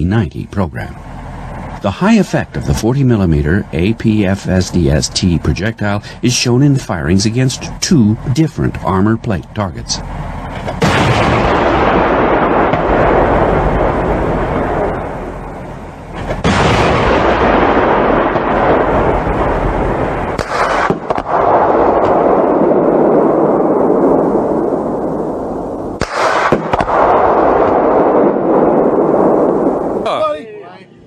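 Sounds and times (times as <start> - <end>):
long rolling echo: 0.0 - 31.0
heavy cannon shots: 10.0 - 30.0.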